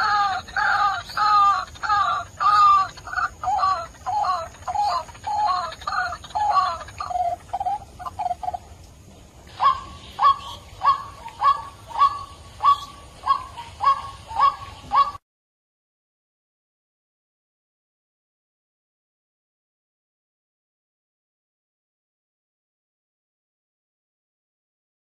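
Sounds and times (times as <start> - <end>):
croaking bird calls: 0.0 - 8.9, 9.5 - 15.2.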